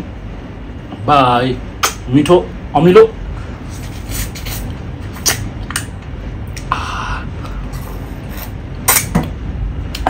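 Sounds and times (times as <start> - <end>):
steady low hum: 0.0 - 10.0
wet mouth smacks and clicks: 5.2 - 5.9.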